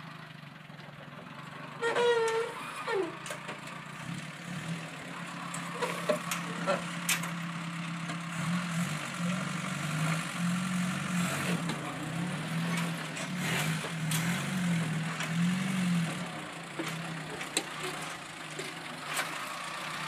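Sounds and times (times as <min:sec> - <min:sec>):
jeep engine revving under load: 0:04.0 - 0:07.3, 0:08.3 - 0:18.2.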